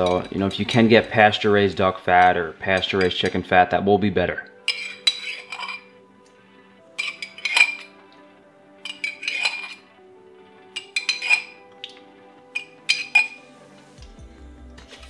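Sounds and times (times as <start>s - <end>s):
soft background music: 0.0s - 15.0s
spoon clinking in glass jar: 4.6s - 6.0s, 7.0s - 8.0s, 8.8s - 9.9s, 10.7s - 13.5s.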